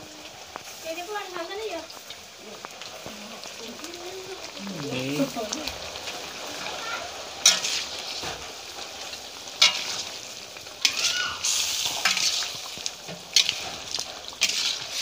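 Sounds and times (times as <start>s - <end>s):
food sizzling in a wok: 0.0s - 15.0s
metal spatula scraping a pan: 7.4s - 15.0s.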